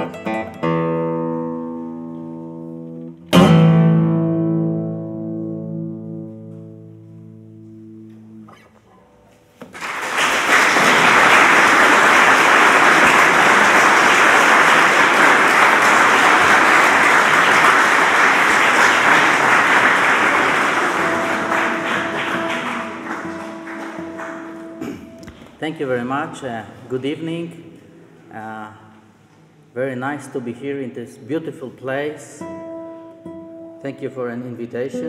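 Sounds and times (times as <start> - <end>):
classical guitar chord ringing: 0.0 - 9.6, 15.7 - 25.2, 34.8 - 35.0
audience applause: 9.6 - 25.2.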